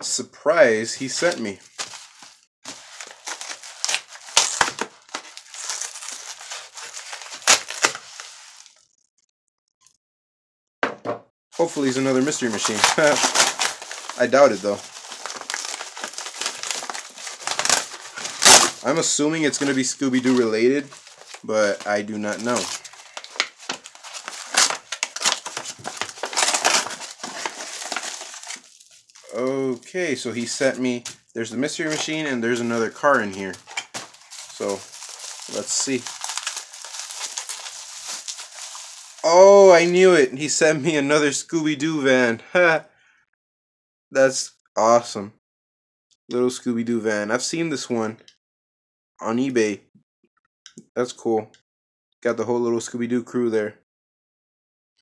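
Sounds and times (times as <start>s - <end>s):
paper envelope ripping: 1.0s - 8.8s, 11.6s - 40.2s
paper crinkling and crackling: 1.0s - 9.0s, 11.6s - 40.2s.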